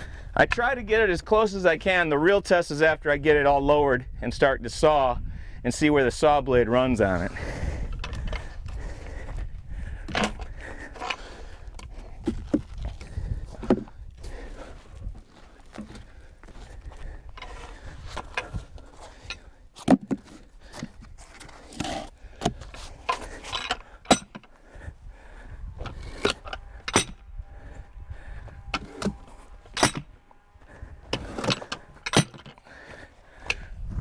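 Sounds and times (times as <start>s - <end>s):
log knocking and scraping: 10.1s - 24.6s.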